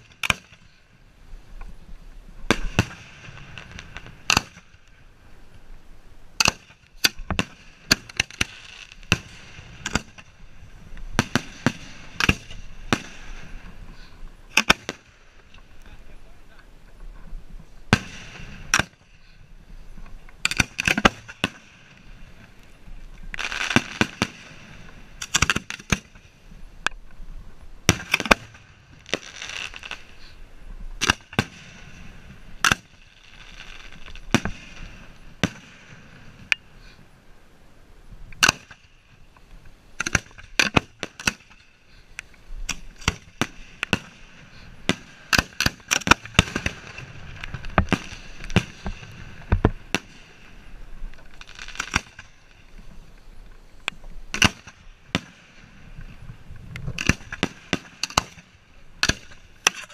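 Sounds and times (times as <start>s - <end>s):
fireworks hissing: 0.0s - 17.0s, 17.6s - 26.9s, 27.6s - 59.9s
firework bangs: 2.4s - 5.0s, 6.4s - 15.5s, 17.9s - 22.6s, 23.4s - 26.6s, 27.8s - 30.3s, 31.0s - 36.8s, 38.4s - 39.2s, 40.0s - 42.0s, 42.6s - 53.0s, 54.3s - 59.9s.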